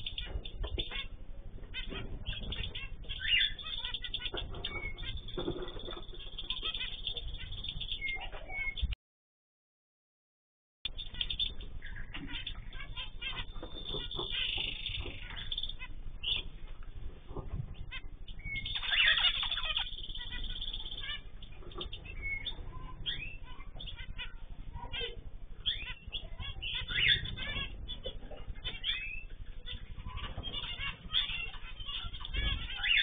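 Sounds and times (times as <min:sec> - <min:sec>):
finches chirping: 0:00.0 - 0:09.0, 0:10.9 - 0:33.0
low hum: 0:10.9 - 0:33.0.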